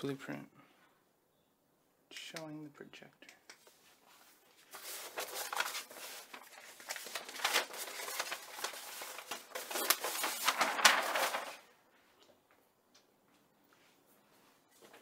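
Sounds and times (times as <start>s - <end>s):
paper sheets rustling and crackling: 4.0s - 11.8s.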